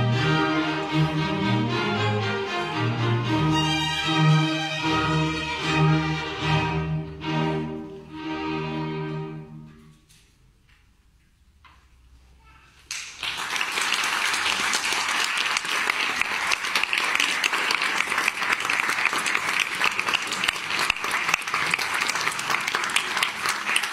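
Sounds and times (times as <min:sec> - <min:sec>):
audience applauding: 0:12.8 - 0:23.9.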